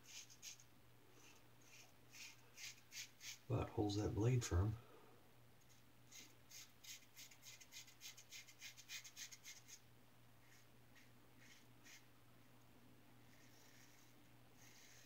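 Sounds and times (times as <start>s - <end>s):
razor scraping stubble: 1.6s - 3.5s, 10.4s - 12.0s, 13.3s - 15.0s.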